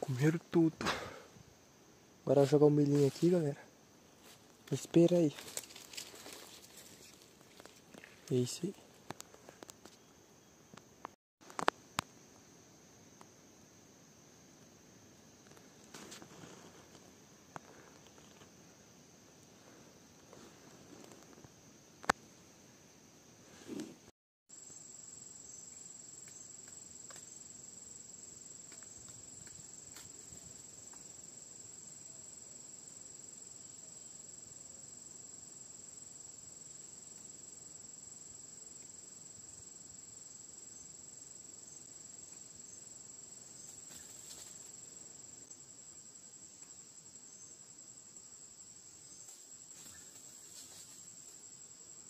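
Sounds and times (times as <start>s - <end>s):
insect high-pitched trill: 0.0s - 8.8s, 24.5s - 52.0s.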